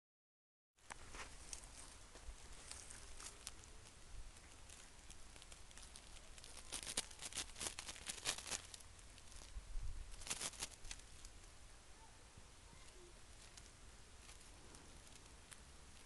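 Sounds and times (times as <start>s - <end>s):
twigs and leaves rustling: 0.8s - 16.0s
kitten claws scratching bark: 2.8s - 9.5s, 10.2s - 11.3s.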